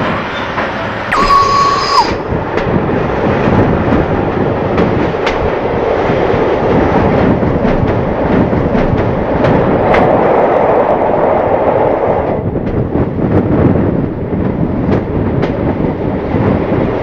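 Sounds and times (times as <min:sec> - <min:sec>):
train wheels rumbling on track: 0:00.0 - 0:01.1, 0:02.3 - 0:17.0
wheels clicking over rail joints: 0:03.5 - 0:10.5.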